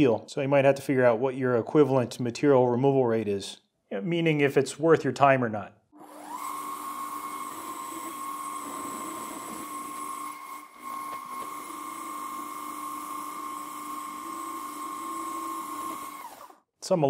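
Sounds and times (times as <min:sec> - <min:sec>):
lathe cutting steel whine: 0:06.0 - 0:16.6.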